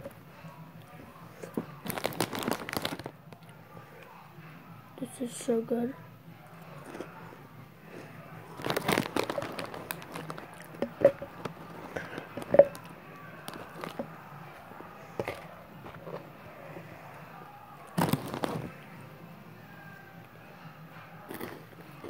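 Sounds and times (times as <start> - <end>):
crunchy snack chewing: 1.5 - 3.5, 8.5 - 14.1, 15.2 - 16.2, 17.9 - 18.8, 21.2 - 21.8
snack bag crinkling: 1.5 - 3.5, 8.5 - 14.6, 15.2 - 16.2, 17.9 - 18.8, 21.3 - 21.6.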